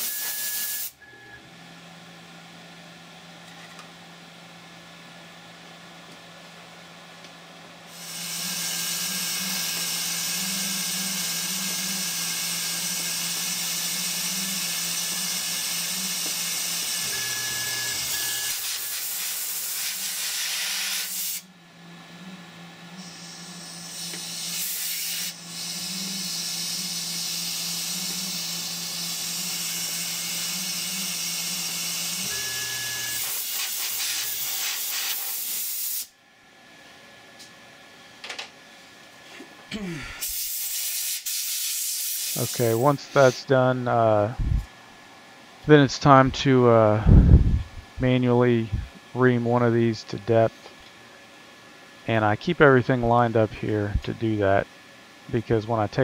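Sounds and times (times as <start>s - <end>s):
mill spindle humming: 0.0s - 34.5s
air nozzle hissing: 33.2s - 36.1s, 40.2s - 42.6s.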